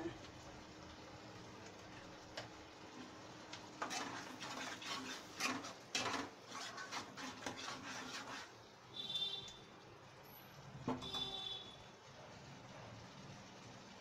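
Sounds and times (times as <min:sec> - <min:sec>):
spatula scraping thick sauce: 0:03.8 - 0:08.7.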